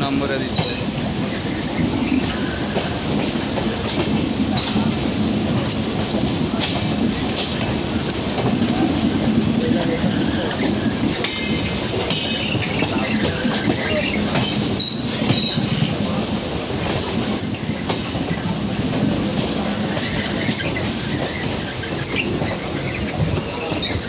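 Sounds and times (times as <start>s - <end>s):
train wheels rumbling over rails: 0.0s - 24.0s
high wheel squeal: 12.2s - 15.8s, 17.3s - 18.9s.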